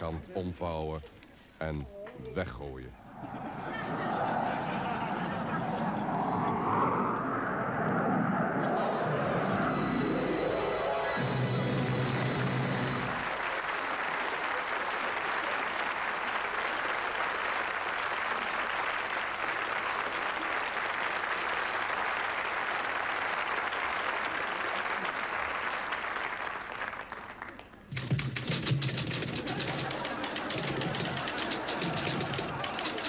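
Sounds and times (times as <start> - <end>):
audience applauding: 8.8 - 33.0.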